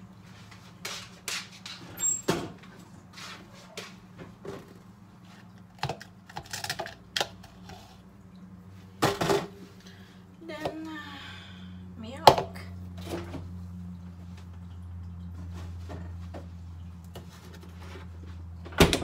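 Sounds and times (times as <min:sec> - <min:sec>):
steady low hum: 0:07.6 - 0:18.9.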